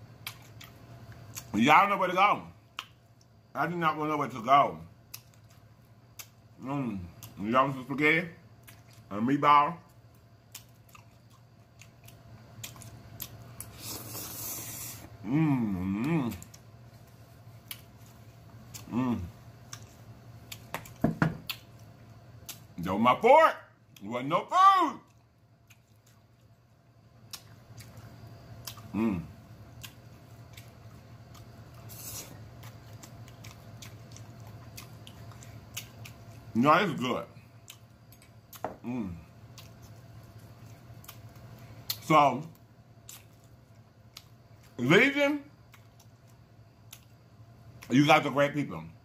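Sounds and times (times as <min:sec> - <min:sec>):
man chewing food: 0:00.0 - 0:01.6, 0:05.0 - 0:07.5, 0:08.5 - 0:09.1, 0:09.9 - 0:22.8, 0:25.0 - 0:36.6, 0:37.3 - 0:44.9, 0:45.5 - 0:47.9
steady low hum: 0:00.0 - 0:49.0
wet clicks and smacks: 0:02.7 - 0:03.4, 0:05.1 - 0:06.4, 0:10.0 - 0:13.7, 0:17.6 - 0:18.9, 0:19.6 - 0:22.8, 0:29.7 - 0:31.5, 0:32.5 - 0:36.5, 0:39.5 - 0:44.8
short hiss: 0:13.7 - 0:15.1
person humming approval: 0:15.2 - 0:16.5, 0:18.8 - 0:19.3, 0:28.9 - 0:29.3.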